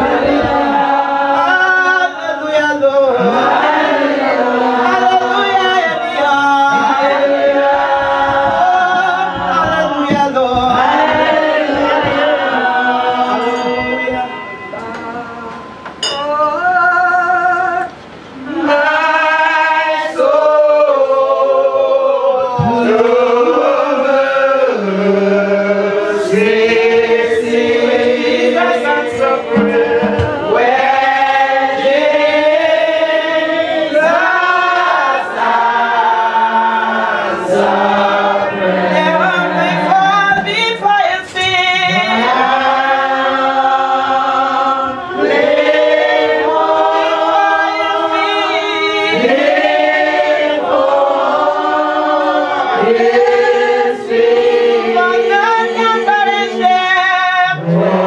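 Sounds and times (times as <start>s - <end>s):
congregation singing a hymn: 0.0s - 58.0s.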